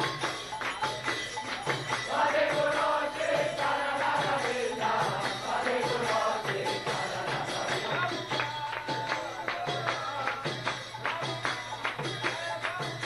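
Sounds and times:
crowd singing a chant in unison: 0:01.6 - 0:11.2.

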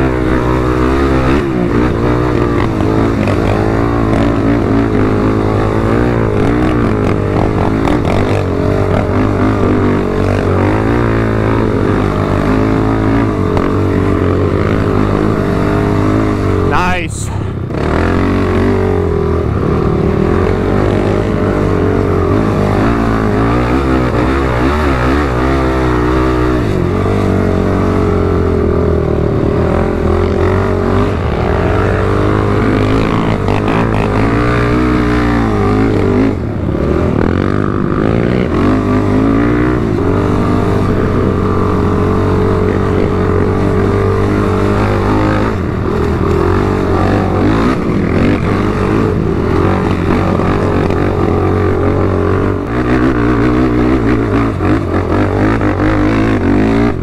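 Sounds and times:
atv engine revving: 0:00.0 - 0:57.0.

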